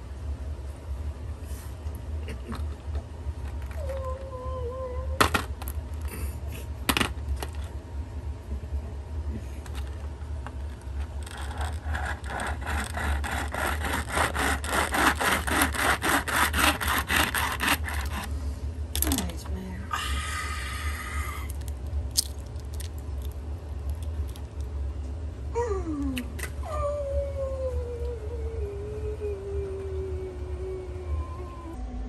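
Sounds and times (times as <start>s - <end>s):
knife rasping on eggshell: 11.2s - 18.3s.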